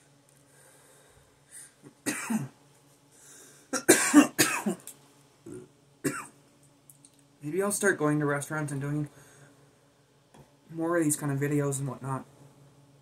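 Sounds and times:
man coughing: 2.0 - 2.6, 3.7 - 4.8, 5.5 - 6.4.

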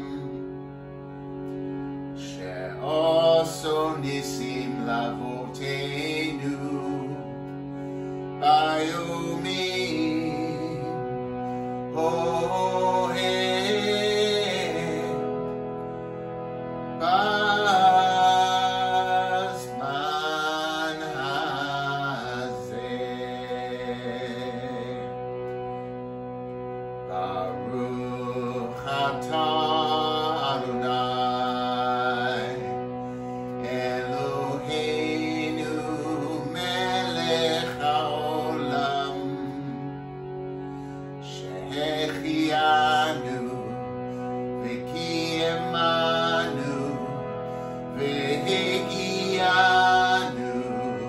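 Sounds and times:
man singing: 0.0 - 0.4, 2.2 - 7.5, 8.3 - 15.5, 17.0 - 25.3, 27.1 - 40.0, 41.2 - 51.0
harmonium chords: 0.0 - 51.0.

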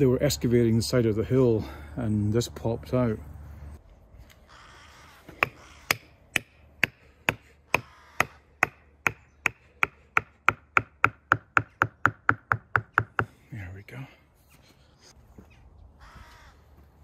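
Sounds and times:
hammer knocking wooden stake: 5.3 - 13.4.

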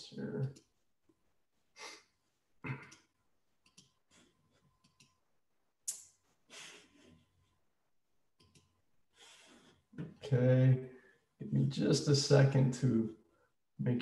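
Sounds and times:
faint small clicks: 2.8 - 4.0, 4.8 - 5.2, 8.4 - 8.7.

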